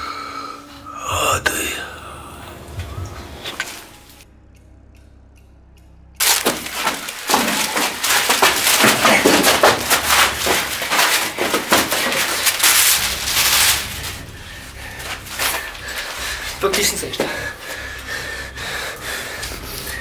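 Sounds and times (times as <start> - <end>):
low hum: 0.0 - 10.9
crashing and smashing: 6.2 - 17.4.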